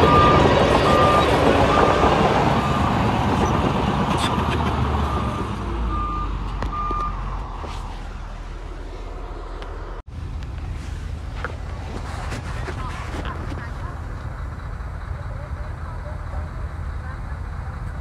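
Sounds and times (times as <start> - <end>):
backup alarm beeping: 0.0 - 2.9, 5.0 - 7.2
diesel engine: 0.0 - 18.0.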